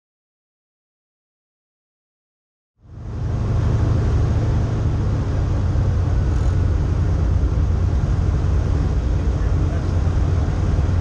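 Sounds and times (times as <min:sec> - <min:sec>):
propeller plane engine droning: 0:02.8 - 0:11.0.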